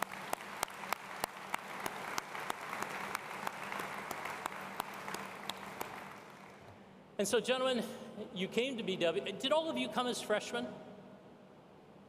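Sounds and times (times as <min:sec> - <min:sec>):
audience applauding: 0:00.0 - 0:06.7
sharp claps close to microphone: 0:00.0 - 0:06.7.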